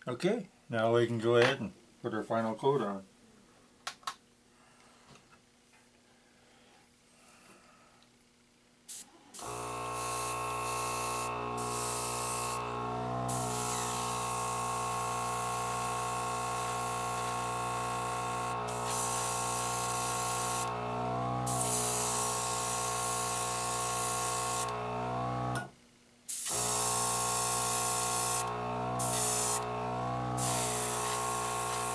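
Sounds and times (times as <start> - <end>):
airbrush spraying hiss: 8.9 - 20.7, 21.5 - 24.8, 26.3 - 29.7, 30.4 - 31.9.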